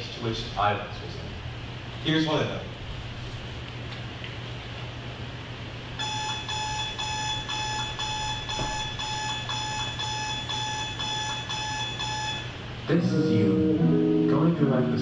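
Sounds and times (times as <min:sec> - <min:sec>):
alarm clock beeping: 0:06.0 - 0:12.6.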